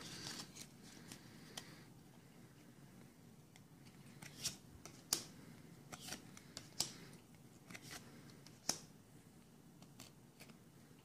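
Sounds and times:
trading cards snapping and rustling: 4.1 - 8.9.

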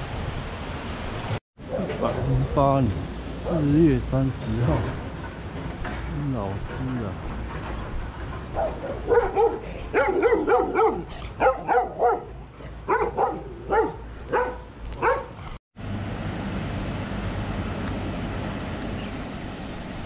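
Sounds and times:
small dog barking: 8.6 - 15.4.

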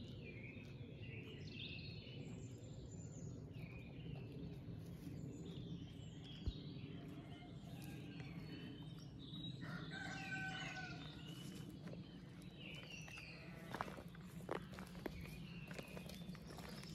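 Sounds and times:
birdsong: 0.0 - 16.9
rooster crowing: 7.1 - 8.5, 9.6 - 11.5.

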